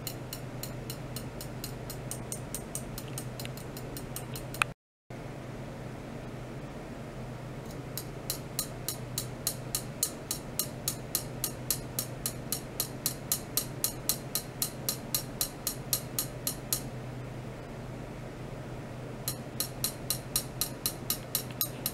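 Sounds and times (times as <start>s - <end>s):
rapid high-pitched ticking: 0.0s - 4.7s
low electrical hum: 0.0s - 21.9s.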